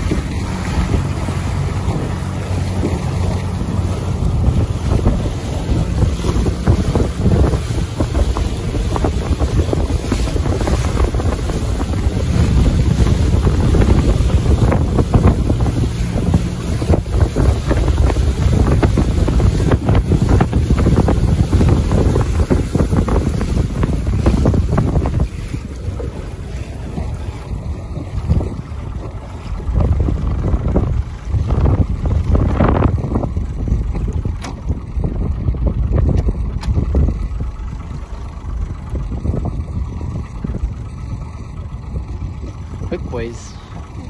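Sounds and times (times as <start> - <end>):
choppy waves against a boat: 0.0 - 44.0
wind buffeting microphone: 0.0 - 44.0.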